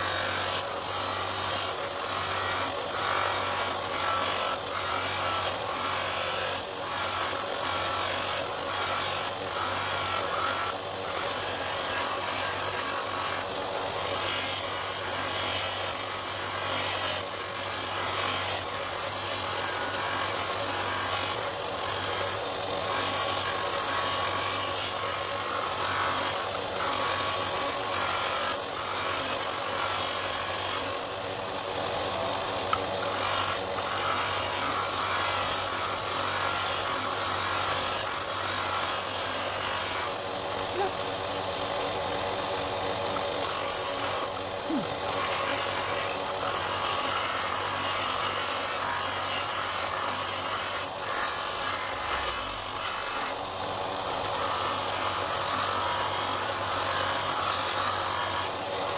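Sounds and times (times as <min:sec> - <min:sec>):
wood grinding rasp: 0:00.0 - 0:58.9
sander motor humming: 0:25.7 - 0:38.2.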